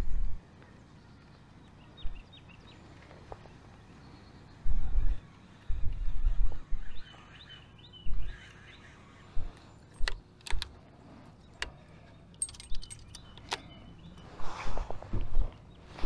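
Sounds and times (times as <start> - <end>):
small metallic clicks: 9.6 - 14.3.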